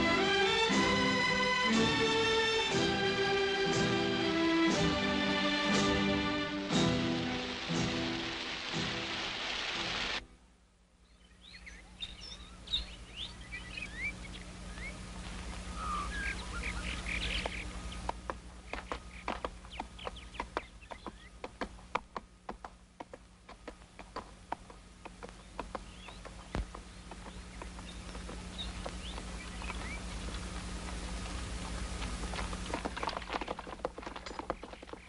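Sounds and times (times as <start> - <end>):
orchestral film music: 0.0 - 10.2
steady low hum: 10.2 - 35.0
birds chirping: 10.8 - 35.0
horse hooves knocking: 17.4 - 35.0.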